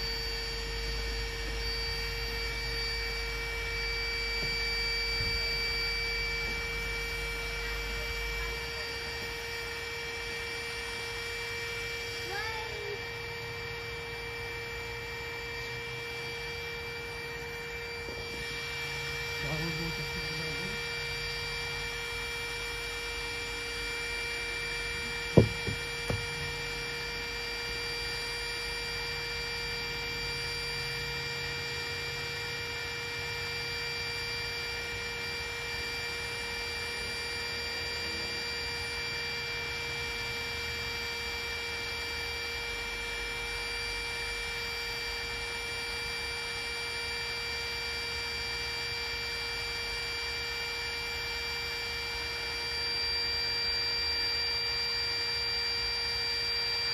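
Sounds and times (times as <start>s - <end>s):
steady hum: 0.0s - 46.2s
sharp knock: 25.4s - 26.5s.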